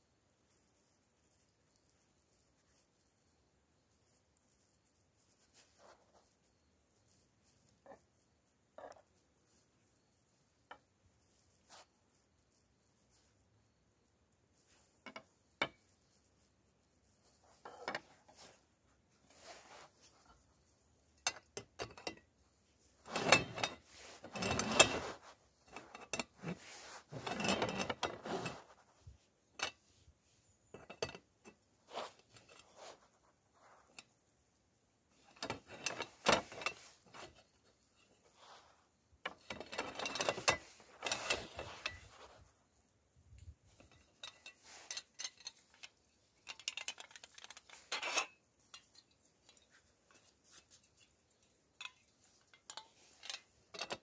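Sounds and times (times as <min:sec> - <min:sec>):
metal stand clicking and rattling: 0:23.0 - 0:28.6, 0:35.2 - 0:38.2, 0:39.2 - 0:42.4, 0:43.7 - 0:54.0.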